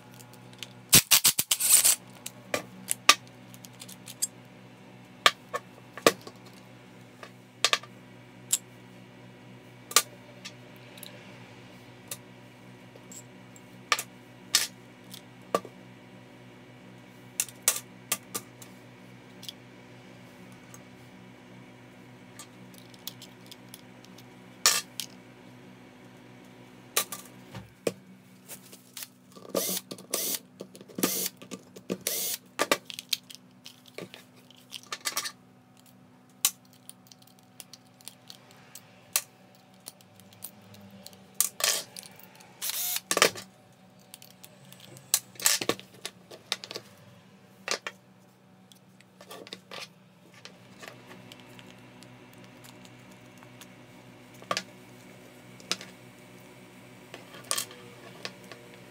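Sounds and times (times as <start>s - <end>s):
small parts clattering: 32.6s - 42.5s.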